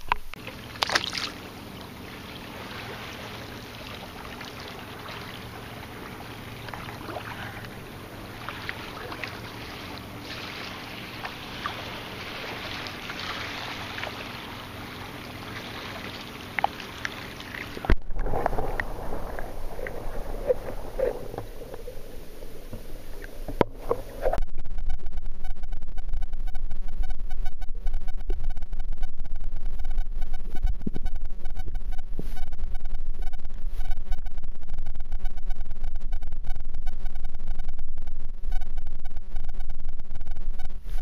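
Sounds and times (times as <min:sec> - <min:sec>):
low sloshing rumble: 0:00.3 - 0:24.5
faint ticks and crackles: 0:11.2 - 0:41.0.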